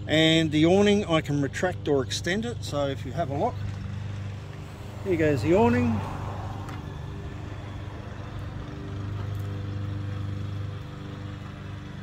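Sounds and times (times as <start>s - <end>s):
awning motor hum: 3.4s - 12.0s.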